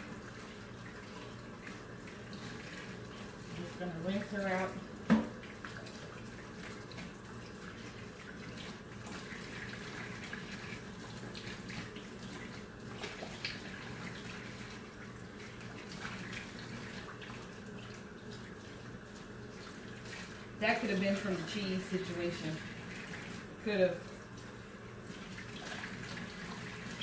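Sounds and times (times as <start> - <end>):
tap running into sink: 5.0 - 5.4.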